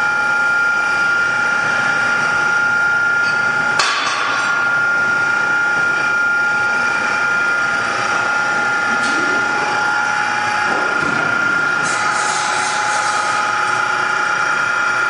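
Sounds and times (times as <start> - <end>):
mixer motor whining: 4.5 - 15.0.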